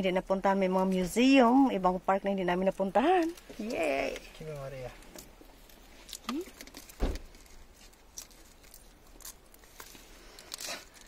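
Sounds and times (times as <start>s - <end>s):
eggshell cracking and peeling: 7.6s - 11.0s.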